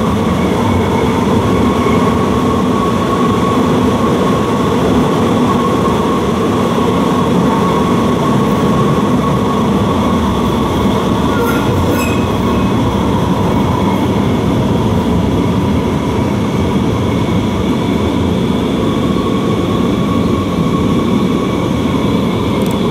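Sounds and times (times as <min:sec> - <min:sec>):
train wheels rumbling on rails: 0:00.0 - 0:22.9
high-pitched squeal: 0:09.3 - 0:14.3.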